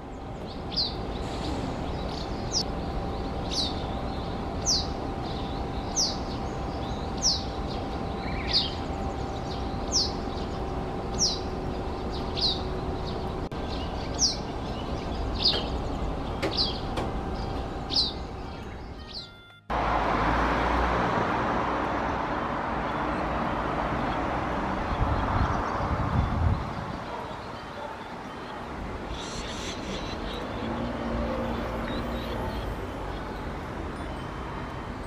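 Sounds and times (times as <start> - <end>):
bird high downward call: 16.3 - 19.7.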